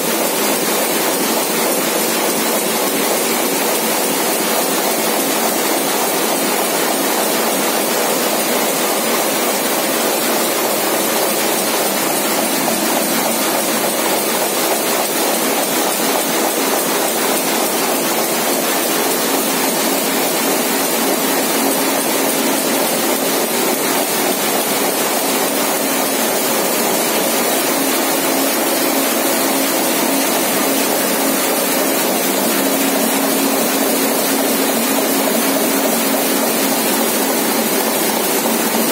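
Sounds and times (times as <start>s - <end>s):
printing press running: 0.0s - 38.9s.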